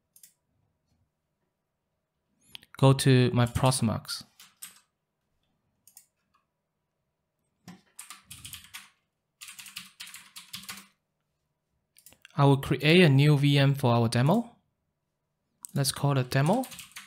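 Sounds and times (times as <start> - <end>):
keyboard typing: 4.3 - 4.9, 7.7 - 11.0, 15.7 - 17.0.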